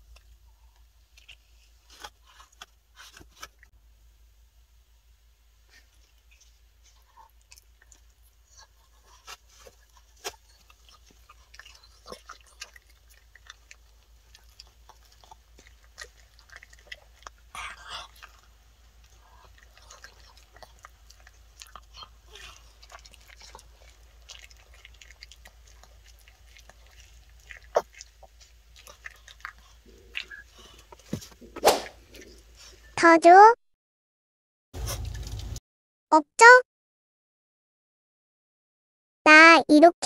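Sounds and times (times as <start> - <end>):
dog crunching a treat: 6.9 - 31.4, 34.8 - 35.6.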